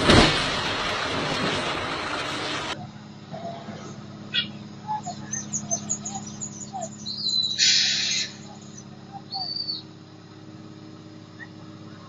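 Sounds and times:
low engine hum: 0:00.0 - 0:12.0
birds chirping: 0:01.1 - 0:12.0
sharp hiss: 0:07.6 - 0:08.4.

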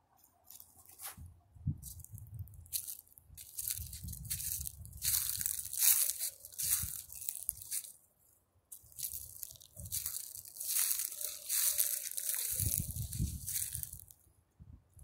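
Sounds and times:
footsteps crunching dry leaves: 0:01.8 - 0:08.0, 0:08.7 - 0:14.2.

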